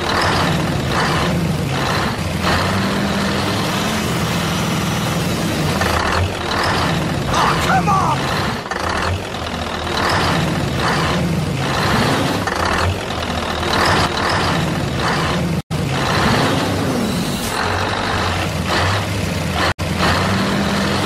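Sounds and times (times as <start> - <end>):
truck engine surging: 0.0 - 21.0.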